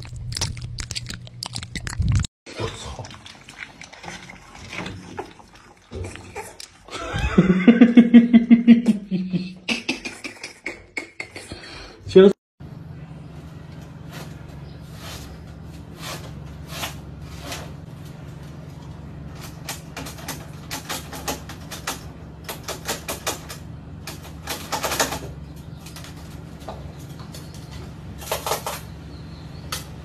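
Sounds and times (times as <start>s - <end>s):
steady low hum: 12.6s - 30.0s.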